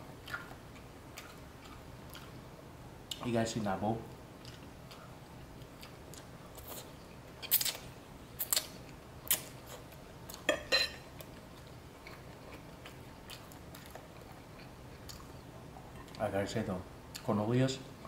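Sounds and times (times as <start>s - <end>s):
person chewing noodles: 0.2s - 2.5s, 4.4s - 10.5s, 11.2s - 15.4s.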